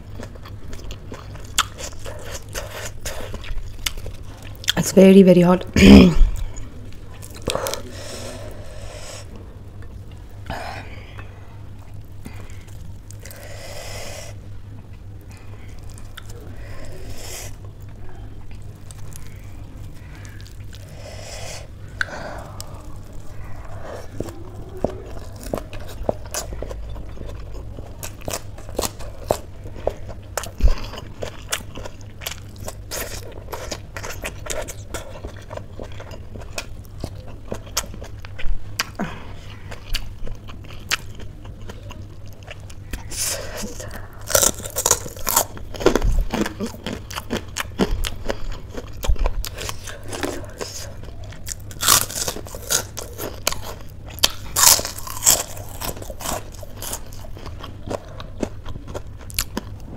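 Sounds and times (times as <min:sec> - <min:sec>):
chewing crunches: 0:00.0 - 0:04.8, 0:06.3 - 0:59.9
breathy hisses: 0:20.8 - 0:22.9.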